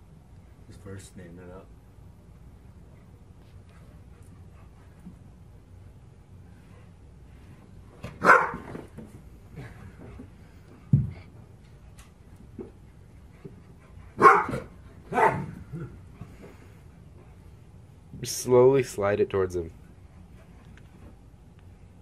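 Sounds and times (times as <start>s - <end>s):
dog barking: 8.2s - 8.7s, 14.2s - 15.5s.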